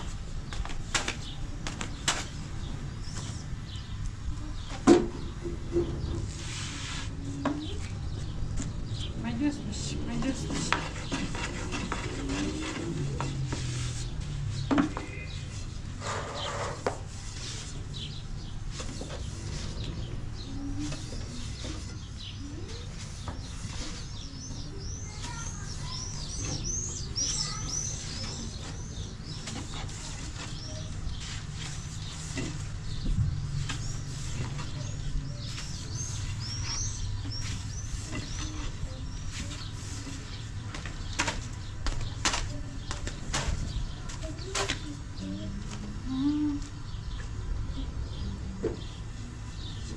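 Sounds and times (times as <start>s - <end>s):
small birds chirping: 0.0s - 49.9s.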